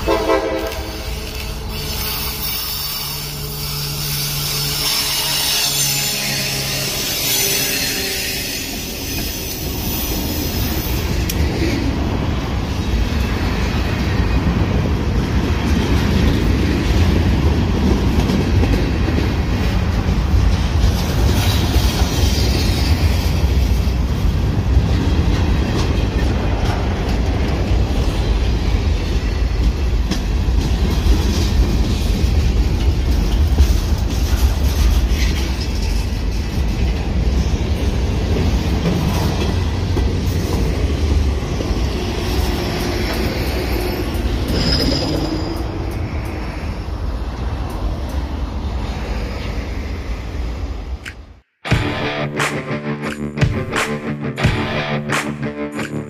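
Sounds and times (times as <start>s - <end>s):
freight train rumbling past: 0.0s - 55.8s
steel wheels clattering on rails: 13.1s - 46.6s.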